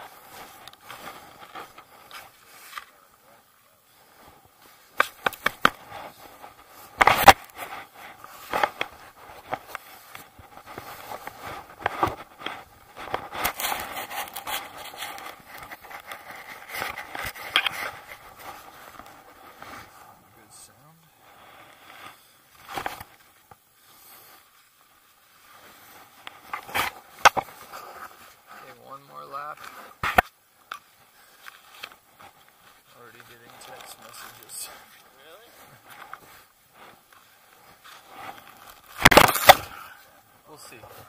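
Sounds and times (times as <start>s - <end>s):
fabric rubbing on microphone: 0.0s - 30.2s, 30.9s - 39.1s
crunching and scraping in snow: 0.0s - 41.0s.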